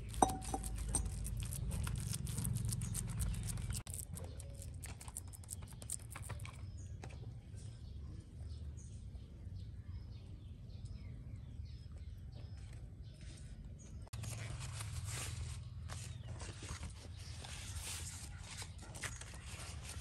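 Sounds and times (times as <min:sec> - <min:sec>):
spoon scraping minced meat: 0:00.0 - 0:06.4
birds chirping: 0:00.0 - 0:14.1.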